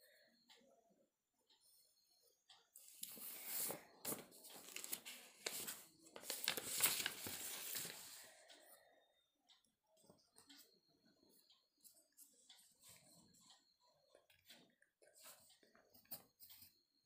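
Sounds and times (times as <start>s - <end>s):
paper rustling and crinkling: 2.9s - 8.2s.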